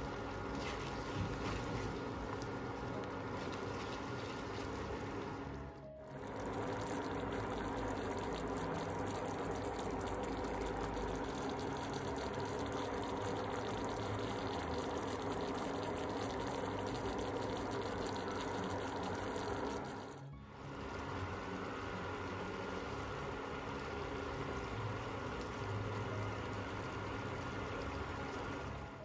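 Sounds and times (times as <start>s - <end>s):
sauce bubbles popping in a pan: 6.1s - 28.8s.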